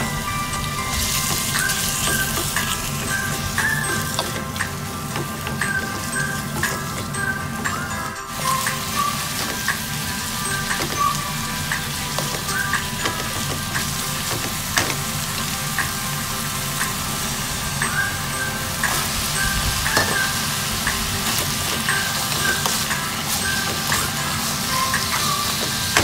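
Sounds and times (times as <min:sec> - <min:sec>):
meat and onions sizzling in a wok: 0:00.0 - 0:26.0
spatula knocking and scraping pan: 0:00.9 - 0:07.7, 0:08.6 - 0:15.2, 0:19.8 - 0:26.0.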